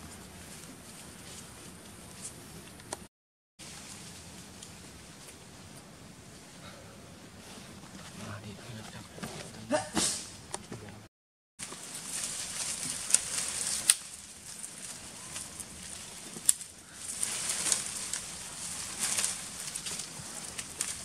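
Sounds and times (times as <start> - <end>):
leaves and twigs rustling: 0.0 - 3.0, 3.6 - 6.6, 11.6 - 21.0
twigs snapping: 11.6 - 21.0.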